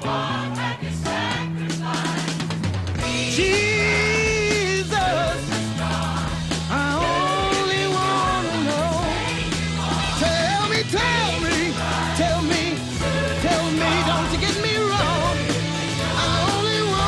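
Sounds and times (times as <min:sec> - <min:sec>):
rock band playing: 0:00.0 - 0:17.0
male vocal singing: 0:03.3 - 0:05.5, 0:06.7 - 0:09.2, 0:10.2 - 0:12.8, 0:13.4 - 0:15.4, 0:16.2 - 0:17.0.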